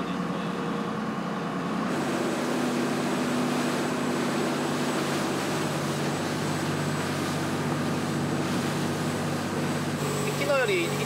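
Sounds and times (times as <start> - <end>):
boat engine running: 0.0 - 11.0
wind and water rushing: 0.0 - 11.0.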